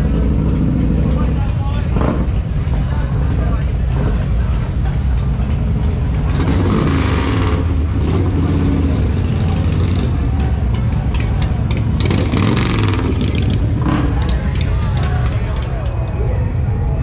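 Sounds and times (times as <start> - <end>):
motorcycle engines rumbling: 0.0 - 17.0.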